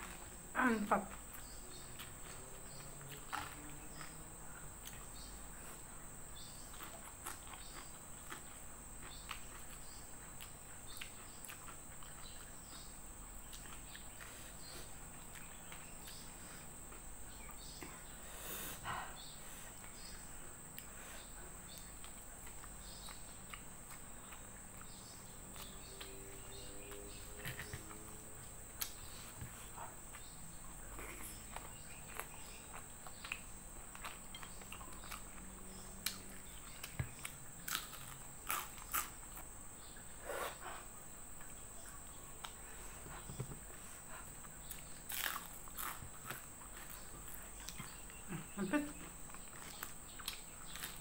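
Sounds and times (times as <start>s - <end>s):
chewing and lip smacks: 31.0s - 39.1s.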